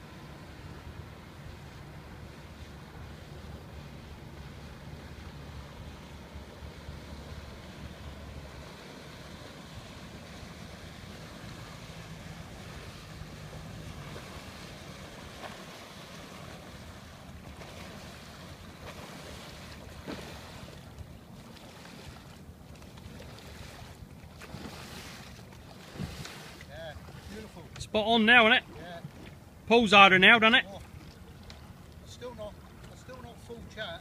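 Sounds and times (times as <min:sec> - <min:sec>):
outboard motor running: 0:00.0 - 0:34.0
water wash: 0:00.0 - 0:34.0
wind on microphone: 0:25.8 - 0:26.6.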